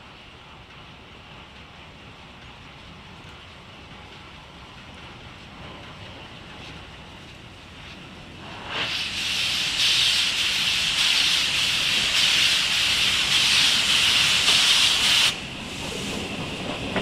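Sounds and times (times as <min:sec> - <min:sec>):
steam locomotive venting steam: 0:05.1 - 0:17.0.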